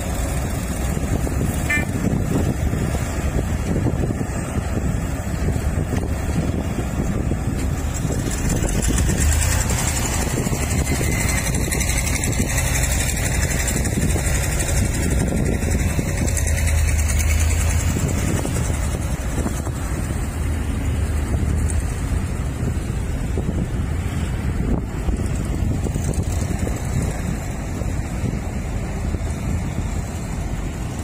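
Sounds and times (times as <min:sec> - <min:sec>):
diesel engines rumbling: 0:00.0 - 0:31.0.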